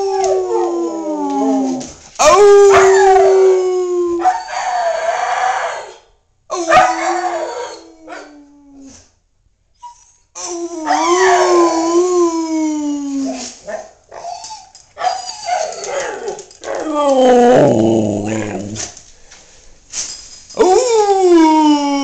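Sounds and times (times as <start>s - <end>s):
dog howling: 0.0s - 6.0s, 6.6s - 8.9s, 10.7s - 13.4s, 15.0s - 18.9s.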